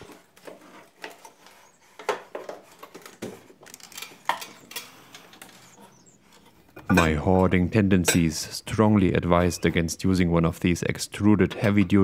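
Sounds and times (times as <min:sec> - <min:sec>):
wooden ladder knocks and clatters: 0:02.0 - 0:04.7.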